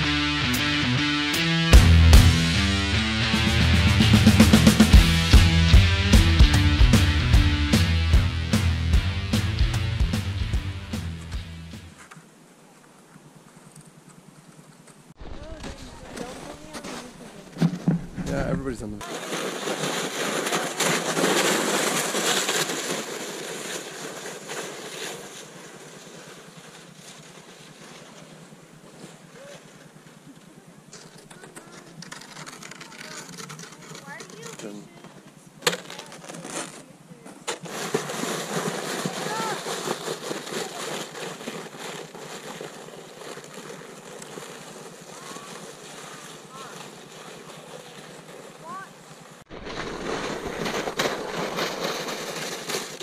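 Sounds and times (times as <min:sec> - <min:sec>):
sled runners hissing on snow: 0:15.6 - 0:30.8, 0:37.1 - 0:53.0.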